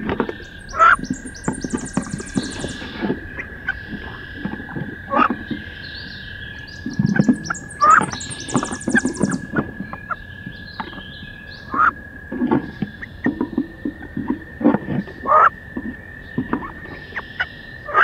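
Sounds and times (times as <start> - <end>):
wing flapping: 0.1 - 4.9.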